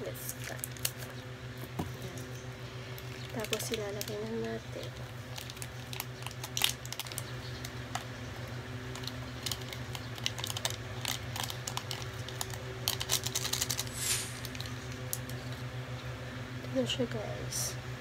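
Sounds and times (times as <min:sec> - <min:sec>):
paper sachets ticking and tapping: 0:02.9 - 0:15.5.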